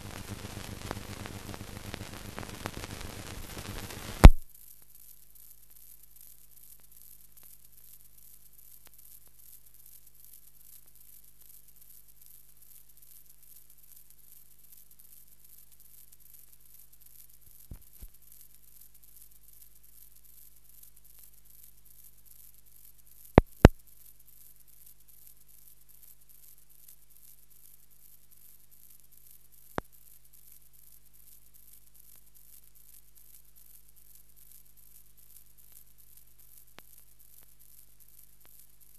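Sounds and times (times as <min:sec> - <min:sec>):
faint click: 0:00.0 - 0:04.4, 0:23.4 - 0:23.8
film soundtrack hiss and hum: 0:00.0 - 0:04.4
film soundtrack hiss: 0:00.0 - 0:38.9
sharp clicks: 0:03.6 - 0:04.4.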